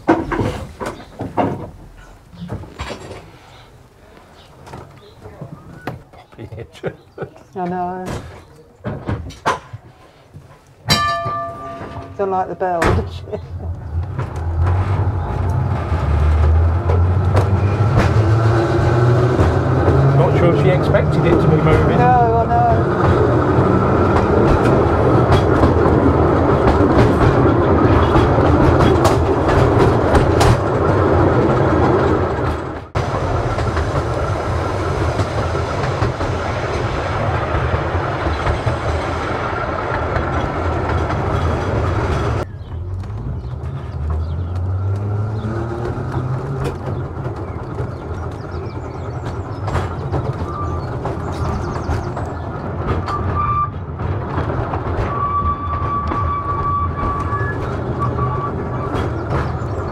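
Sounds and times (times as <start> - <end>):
rail clicks: 0.0 - 59.9
tram wheels rumbling on rail: 0.0 - 59.9.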